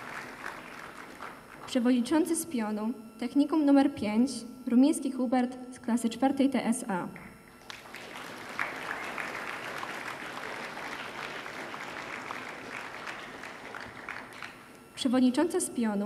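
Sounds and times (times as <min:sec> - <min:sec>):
audience applauding: 0:00.0 - 0:01.7, 0:07.6 - 0:14.8.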